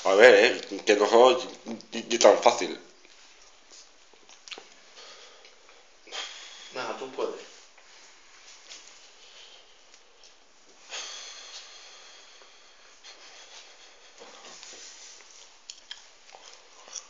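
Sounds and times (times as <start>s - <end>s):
man breathing hard through nose: 4.8s - 6.9s, 9.0s - 10.2s, 10.8s - 15.3s
sharp exhale: 6.1s - 6.8s, 10.8s - 14.6s.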